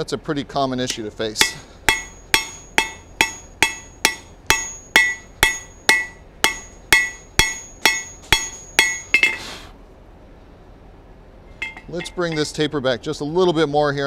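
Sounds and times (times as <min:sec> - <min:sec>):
hammer striking metal on anvil: 0:00.9 - 0:09.4, 0:11.6 - 0:12.6.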